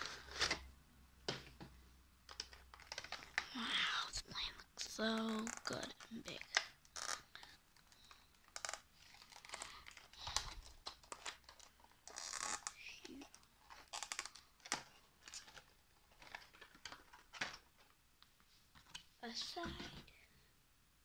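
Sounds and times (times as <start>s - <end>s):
plastic tray crinkling: 2.3s - 3.5s, 5.0s - 18.0s.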